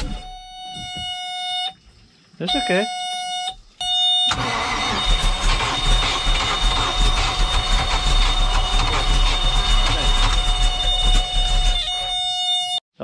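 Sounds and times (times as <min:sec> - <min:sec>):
high-pitched warning buzzer: 0:02.5 - 0:12.8
boat engine clattering: 0:04.3 - 0:11.8.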